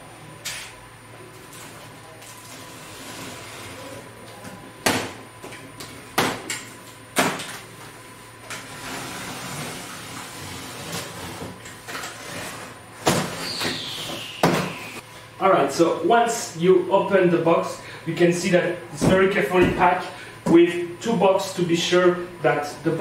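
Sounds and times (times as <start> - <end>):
falling squeal: 13.4 - 15.0.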